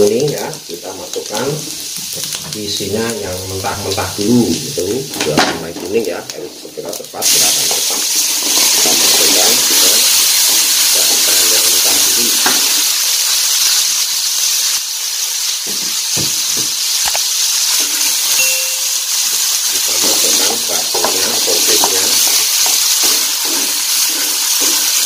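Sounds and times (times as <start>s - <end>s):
chicken sizzling in a wok: 0.0s - 25.0s
wooden spatula scraping a wok: 19.9s - 25.0s.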